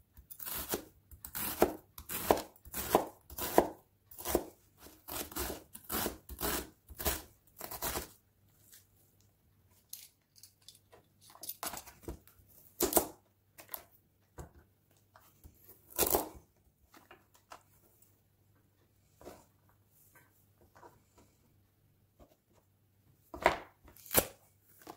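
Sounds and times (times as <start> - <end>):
knife chopping on cutting board: 0.5 - 4.5.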